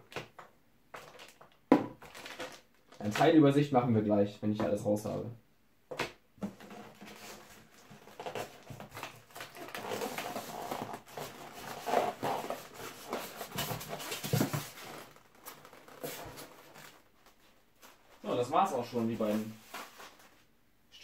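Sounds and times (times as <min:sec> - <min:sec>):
plastic bags rustling: 0:01.0 - 0:03.3, 0:06.5 - 0:17.0
parts clattering against foam: 0:05.9 - 0:17.0
scrapes and knocks: 0:06.4 - 0:17.0.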